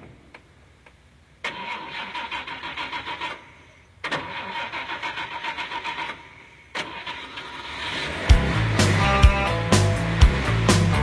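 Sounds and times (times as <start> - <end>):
car starter cranking engine: 1.4 - 9.1.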